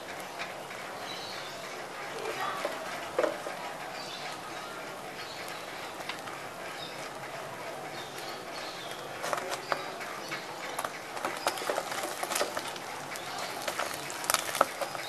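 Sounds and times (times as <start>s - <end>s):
omelette sizzling in oil: 10.8s - 15.0s.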